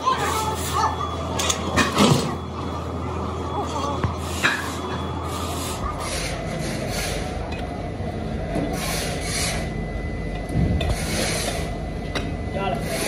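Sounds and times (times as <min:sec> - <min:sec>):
workshop machine noise: 0:00.0 - 0:13.0
rasping scraping strokes: 0:10.8 - 0:11.7.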